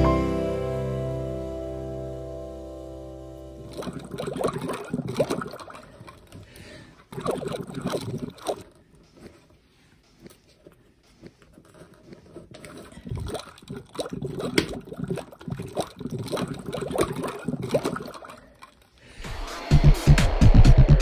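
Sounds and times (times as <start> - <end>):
water sloshing and gurgling: 3.6 - 9.4, 12.1 - 19.2.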